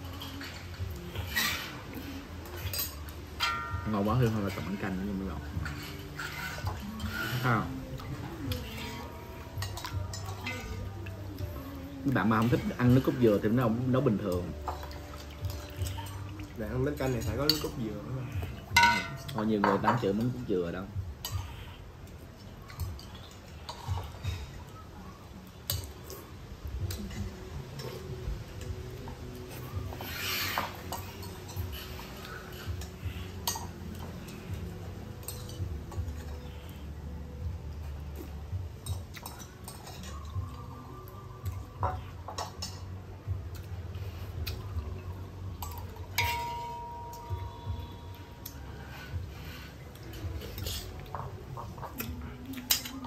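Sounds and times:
spoons clinking on bowls: 17.0 - 20.4, 45.6 - 48.6.

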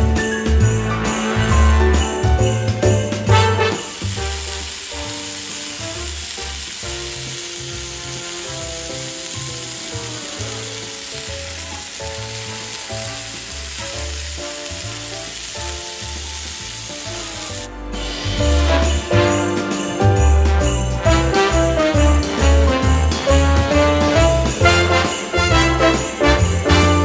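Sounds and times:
background music: 0.0 - 27.0
burger patties sizzling on griddle: 3.3 - 17.7.

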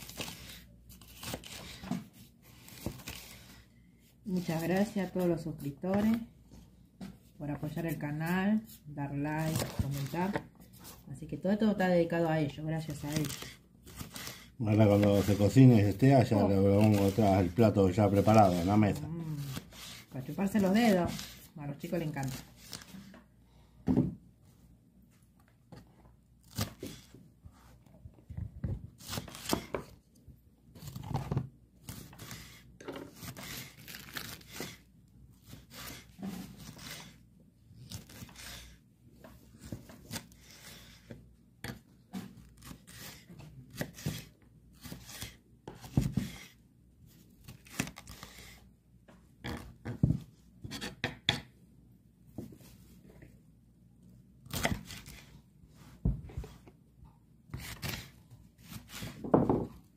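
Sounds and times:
knife slicing peppers: 12.9 - 22.9, 26.4 - 27.1, 29.0 - 30.0, 30.8 - 37.2, 37.8 - 38.8, 39.6 - 46.6, 54.4 - 55.4.

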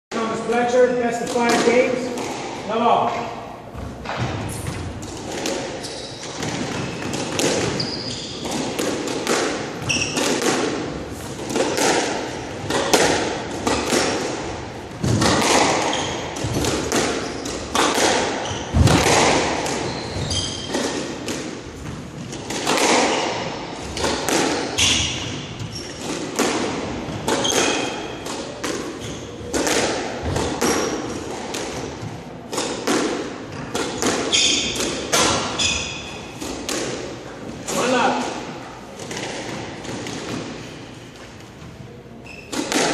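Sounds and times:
squash ball hitting rackets and walls: 0.2 - 42.9
shoes squeaking on wooden floor: 5.7 - 8.8, 9.8 - 10.5, 15.8 - 19.0, 19.6 - 20.9, 23.1 - 26.2, 29.0 - 29.5, 34.3 - 36.3, 42.2 - 42.7.

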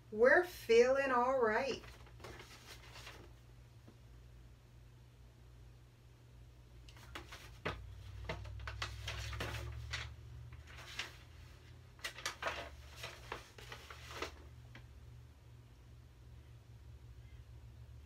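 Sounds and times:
book pages rustling: 1.8 - 3.4, 6.9 - 14.9.

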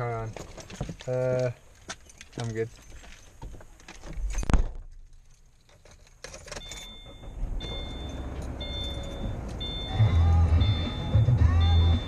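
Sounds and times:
high warning chime beeping: 6.5 - 12.0.

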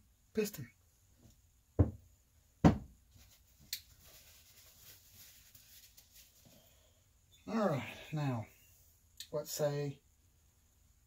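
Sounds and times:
shop rag rustling: 3.1 - 6.5.

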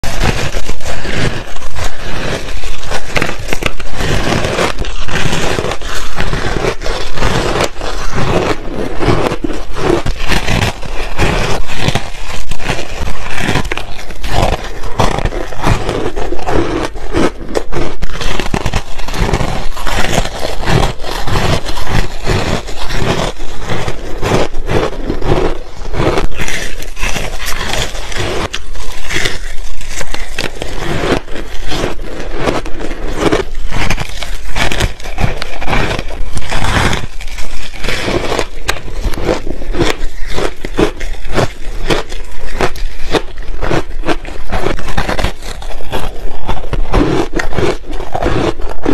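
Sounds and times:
ice being chewed: 0.0 - 48.9.

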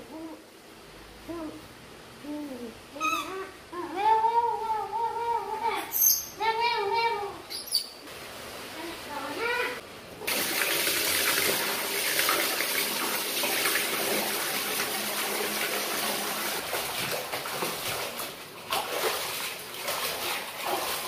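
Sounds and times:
water running from a tap: 10.3 - 17.9
light knocks and splashes: 16.6 - 21.0.

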